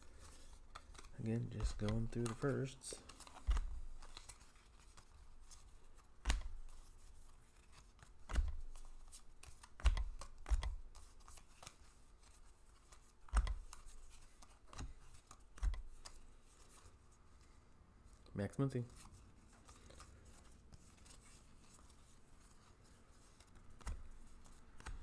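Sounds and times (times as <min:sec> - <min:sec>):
rustle of sliding cards: 0:00.0 - 0:25.0
cards tapped down: 0:00.7 - 0:04.4, 0:06.2 - 0:06.8, 0:08.2 - 0:11.8, 0:13.3 - 0:14.0, 0:14.6 - 0:16.2, 0:23.7 - 0:25.0.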